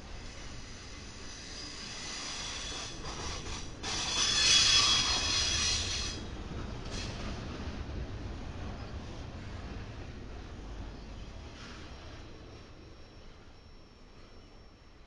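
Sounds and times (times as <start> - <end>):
freight train rolling on rails: 0.0 - 15.0
high metallic wheel squeal: 0.4 - 6.2.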